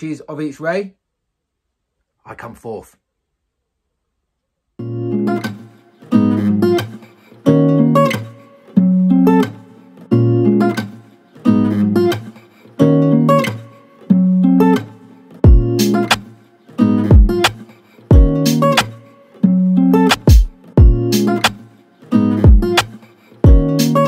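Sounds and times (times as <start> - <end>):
strummed acoustic guitar: 4.8 - 24.0.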